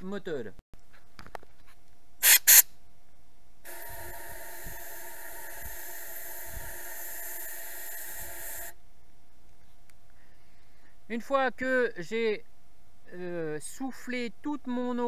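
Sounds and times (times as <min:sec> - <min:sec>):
compressed air hissing and whistling: 0:02.2 - 0:02.7, 0:03.7 - 0:08.8.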